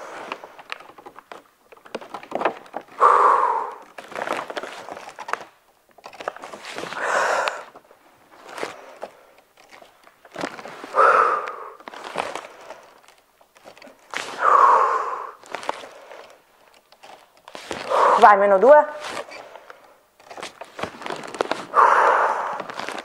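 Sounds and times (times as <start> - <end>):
plastic pack crinkling: 0.0 - 3.0, 3.7 - 14.5, 15.4 - 23.0
small clicks and knocks: 0.6 - 2.9
breathy exhale: 3.0 - 3.8, 6.9 - 7.8, 10.8 - 13.0, 14.3 - 16.4, 17.8 - 18.3, 21.7 - 23.0.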